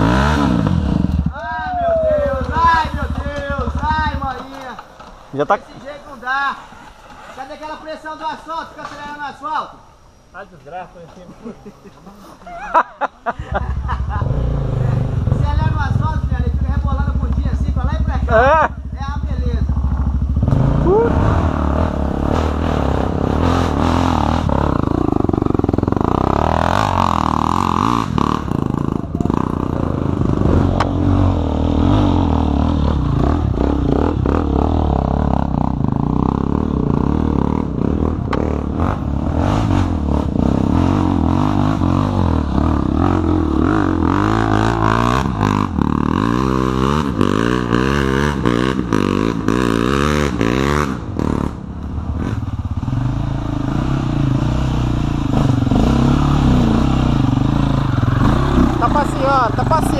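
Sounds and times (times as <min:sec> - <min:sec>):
dirt bike passing close: 0:00.0 - 0:05.6, 0:13.4 - 0:59.9
dirt bike engines revving: 0:00.0 - 0:59.9.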